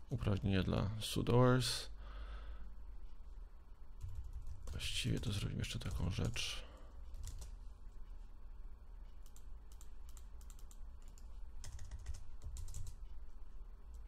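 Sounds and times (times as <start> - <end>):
low steady hum: 0.0 - 14.0
keyboard typing: 4.0 - 6.4, 7.1 - 7.6, 9.1 - 13.2.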